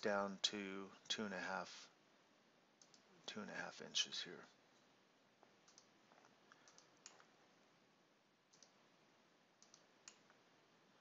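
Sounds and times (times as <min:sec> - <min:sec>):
computer mouse clicks: 0:02.8 - 0:03.1, 0:05.6 - 0:07.4, 0:08.5 - 0:08.8, 0:09.6 - 0:10.4.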